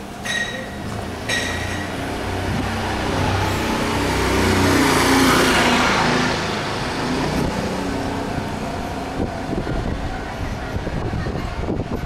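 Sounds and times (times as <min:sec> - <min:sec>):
street noise: 0:00.0 - 0:12.0
motor vehicle passing: 0:01.0 - 0:10.6.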